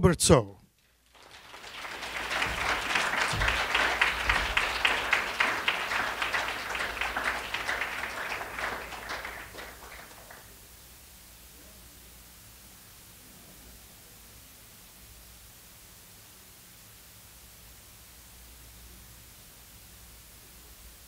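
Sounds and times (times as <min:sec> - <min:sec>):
audience applauding: 0:01.0 - 0:10.6.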